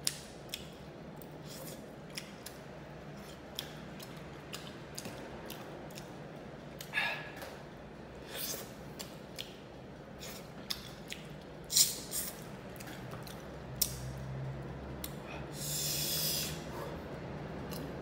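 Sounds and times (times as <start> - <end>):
wet chewing and lip smacks: 0.0 - 7.5, 8.4 - 14.2.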